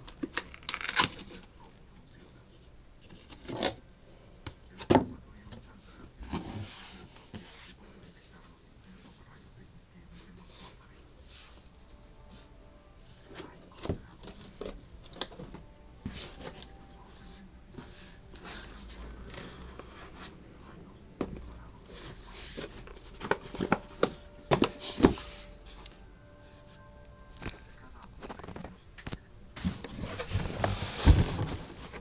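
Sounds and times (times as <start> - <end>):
cardboard scraping and rubbing: 6.0 - 9.2, 29.6 - 32.0.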